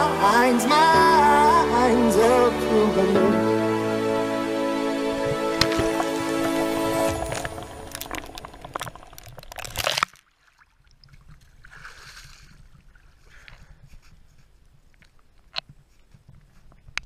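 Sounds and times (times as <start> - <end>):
water sloshing and gurgling underwater: 5.1 - 13.3.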